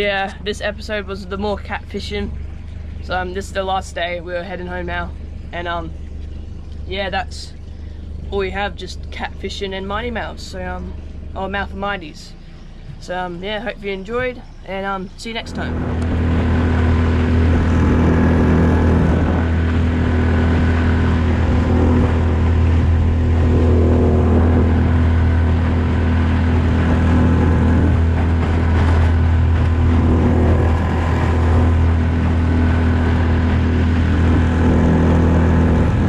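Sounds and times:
outboard motor running: 0.0s - 36.0s.

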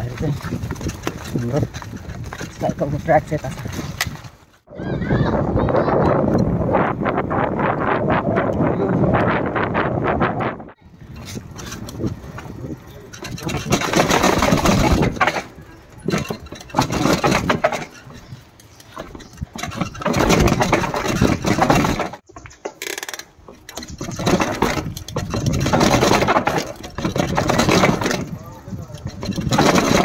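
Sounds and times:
mountain bike riding noise: 0.0s - 30.0s
rattling clicks: 11.2s - 30.0s.

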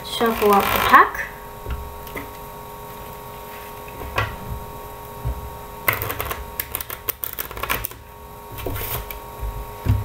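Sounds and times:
faint steady hum: 0.0s - 10.0s
playing cards riffle-shuffled: 5.9s - 8.0s.

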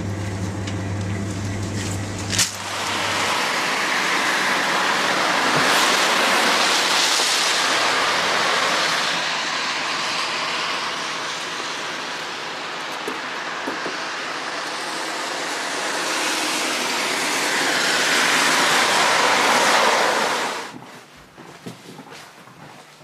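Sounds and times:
tyres hissing on wet road: 2.3s - 20.7s.

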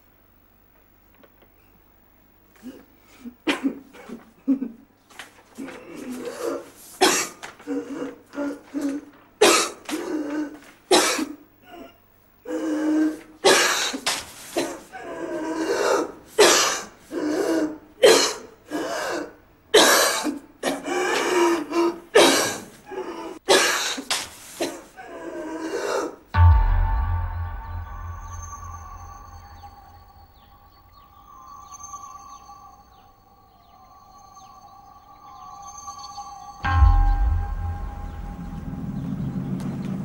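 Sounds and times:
person coughing: 2.6s - 4.7s.

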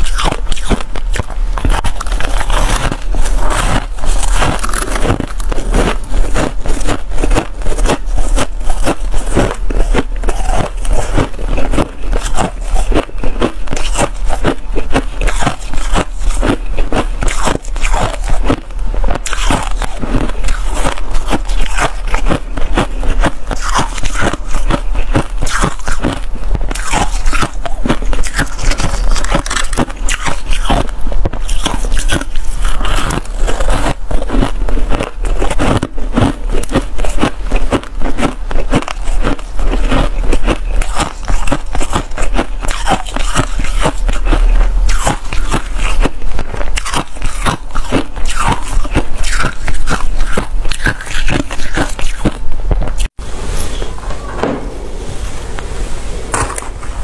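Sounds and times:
frost being chewed: 0.0s - 53.2s.

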